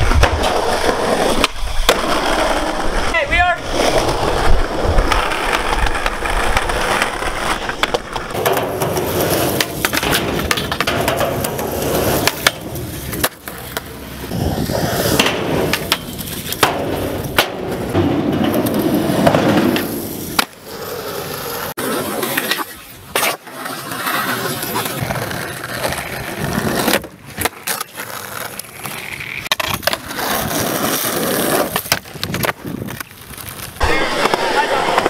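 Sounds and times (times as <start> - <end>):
skateboard tail pops and landings: 0.0 - 2.8, 4.0 - 20.6, 25.8 - 28.0, 29.4 - 35.0
skateboard sliding on metal rail: 0.0 - 35.0
skateboard wheels rolling on concrete: 0.0 - 35.0.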